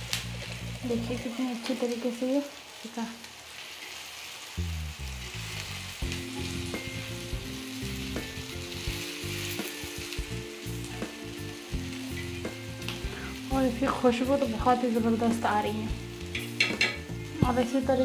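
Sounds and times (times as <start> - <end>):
food sizzling in oil: 0.0 - 18.0
spatula tapping pan: 16.2 - 17.2.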